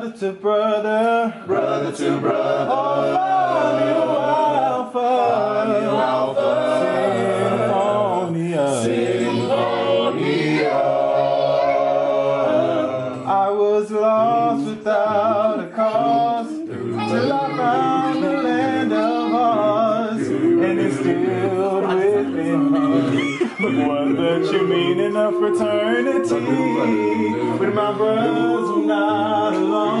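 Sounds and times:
group singing a cappella: 0.0 - 30.0.

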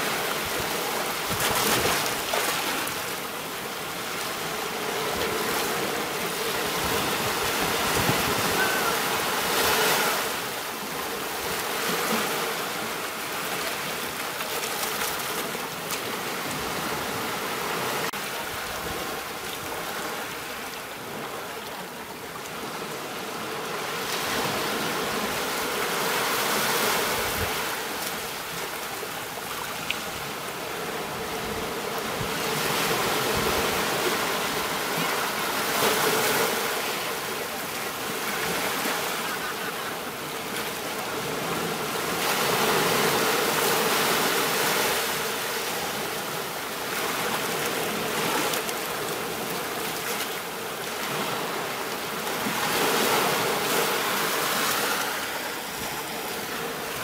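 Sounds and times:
ocean waves breaking: 0.0 - 57.0.

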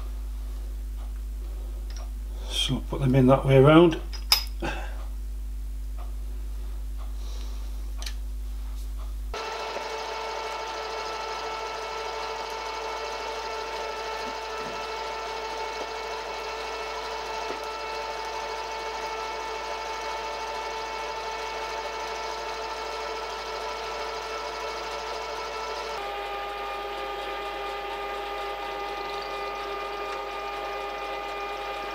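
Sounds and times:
milling machine whine: 9.4 - 31.9.

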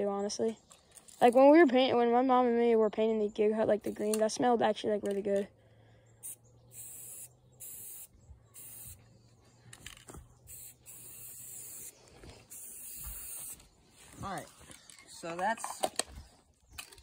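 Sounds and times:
spray paint can hissing: 6.2 - 9.0, 10.4 - 13.6.

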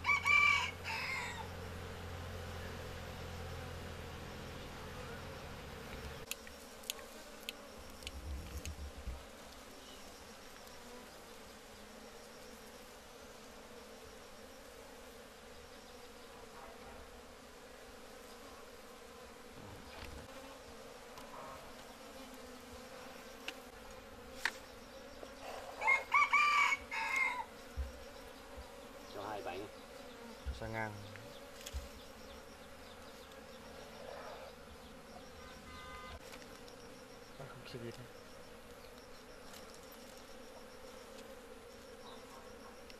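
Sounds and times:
rooster crowing: 0.0 - 1.5, 25.7 - 27.5
bees buzzing: 0.0 - 42.9.

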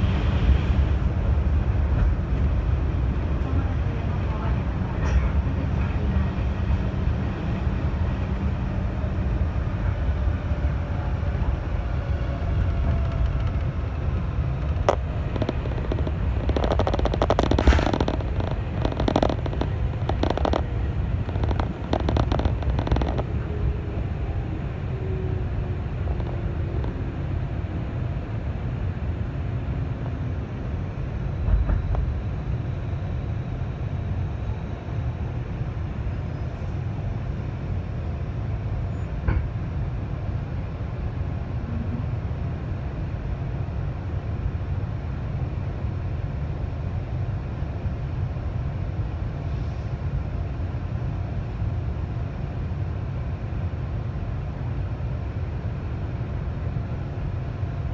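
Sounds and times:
low train rumble with hum: 0.0 - 57.9
train wheels clattering over joints: 12.7 - 23.4.

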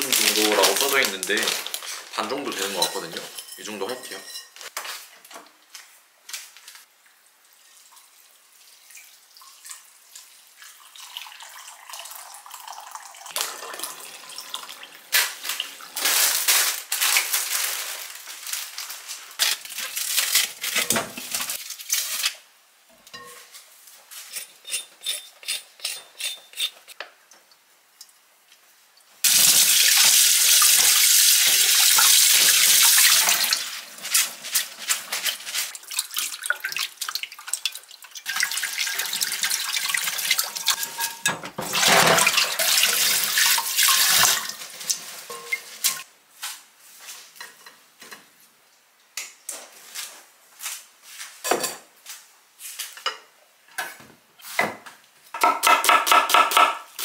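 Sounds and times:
tap water running into a sink: 29.3 - 33.6, 35.8 - 40.8, 41.6 - 44.6.

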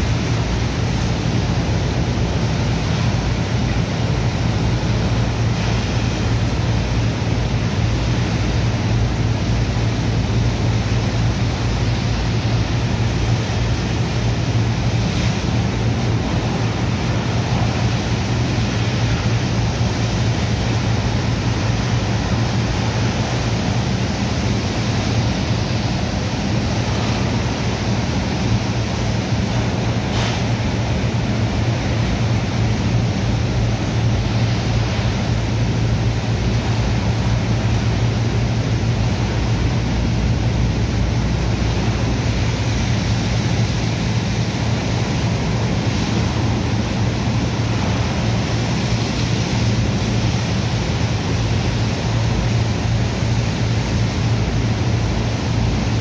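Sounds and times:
hose water jetting into sand: 0.0 - 40.2
pump engine droning: 0.0 - 56.0.

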